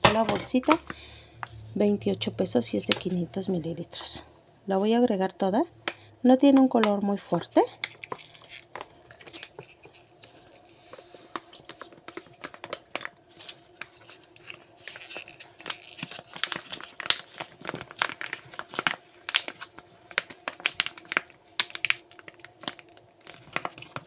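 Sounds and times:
plastic pouch crinkling: 7.7 - 24.0.

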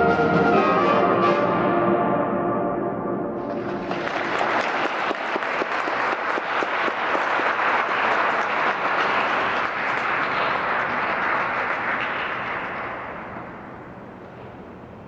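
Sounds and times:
audience applauding: 3.5 - 13.9.

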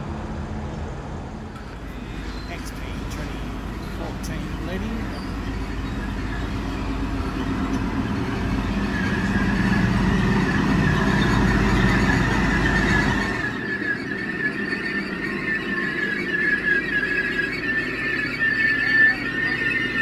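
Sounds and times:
train diesel engine rumble: 0.0 - 20.0
high brake squeal: 1.6 - 20.0.

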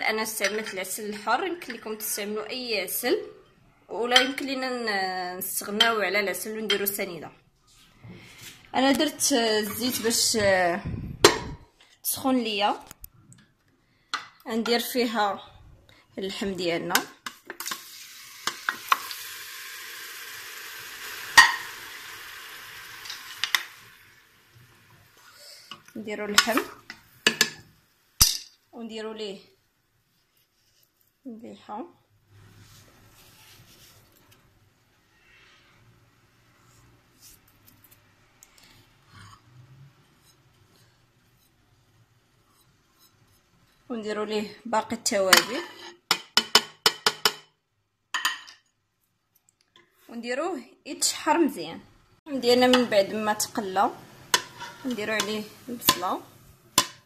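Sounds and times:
meat sizzling in hot oil: 17.6 - 25.3.

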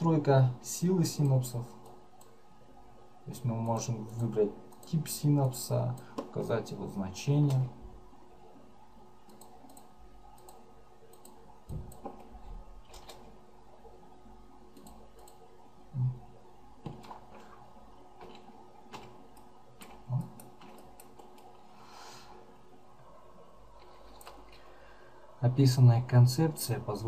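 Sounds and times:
keyboard and mouse clicks: 9.2 - 13.4, 14.7 - 15.5, 16.8 - 17.6, 18.2 - 21.6, 23.8 - 24.6.

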